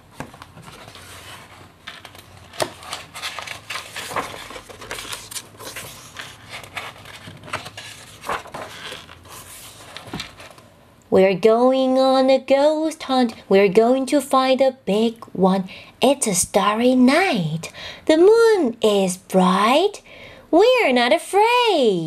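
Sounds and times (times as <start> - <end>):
paper pages rustling: 0.1 - 10.7.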